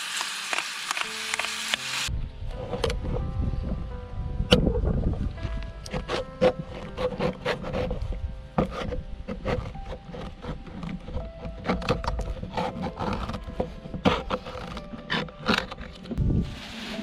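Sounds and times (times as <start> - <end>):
knife scraping tin can lid: 5.9 - 16.2.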